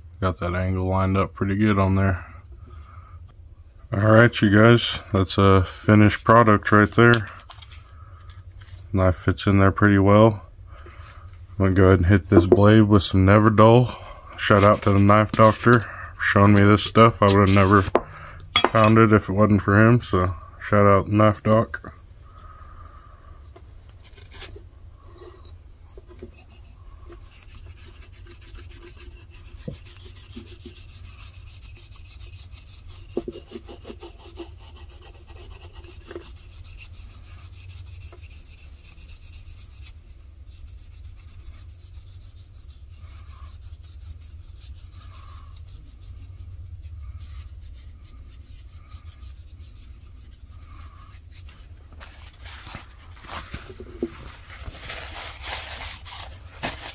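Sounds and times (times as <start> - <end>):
steady low hum: 0.0 - 56.9
wadding rubbing on knife blade: 26.1 - 51.5.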